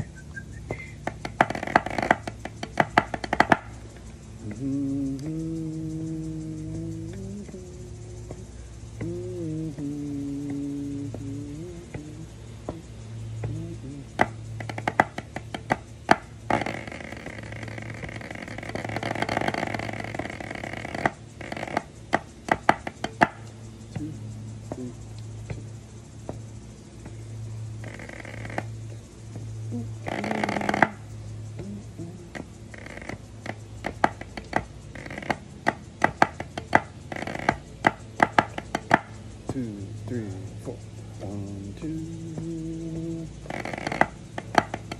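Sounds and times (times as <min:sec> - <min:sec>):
fast drum rolls on pad: 0:00.0 - 0:44.9
low hum: 0:00.0 - 0:44.9
drumsticks striking a practice pad: 0:01.0 - 0:04.1, 0:13.4 - 0:16.9, 0:20.6 - 0:24.1, 0:31.6 - 0:39.7
drumsticks striking practice pad: 0:01.0 - 0:04.1, 0:07.2 - 0:17.1, 0:17.9 - 0:27.2, 0:30.2 - 0:44.9.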